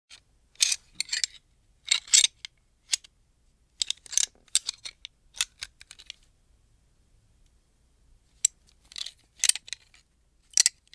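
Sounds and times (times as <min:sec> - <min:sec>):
gun parts clicking and clacking: 0:00.6 - 0:03.1, 0:03.8 - 0:06.2, 0:08.4 - 0:10.9.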